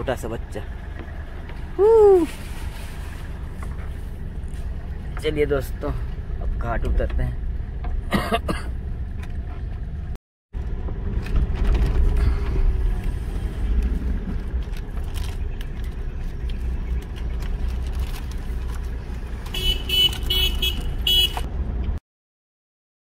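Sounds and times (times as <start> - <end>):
engine and road rumble: 0.0 - 22.0
car horn short beeps: 19.5 - 21.5.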